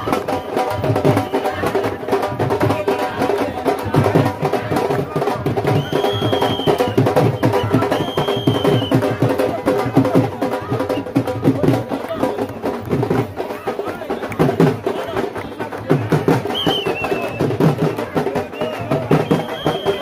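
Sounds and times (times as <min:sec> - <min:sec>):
fast steady drumming: 0:00.0 - 0:20.0
festive procession music: 0:00.0 - 0:20.0
high whistle-like tones: 0:05.7 - 0:09.1, 0:16.4 - 0:17.6, 0:18.3 - 0:20.0.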